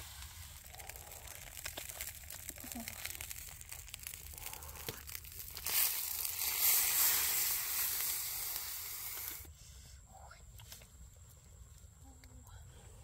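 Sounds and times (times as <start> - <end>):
soft crinkling: 0.0 - 9.5
chicken sizzling in hot oil: 5.1 - 9.5.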